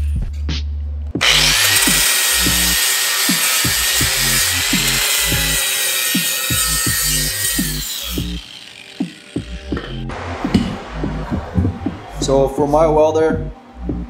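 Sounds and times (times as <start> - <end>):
angle grinder grinding steel: 1.2 - 10.1
background music with bass beat: 9.4 - 14.0.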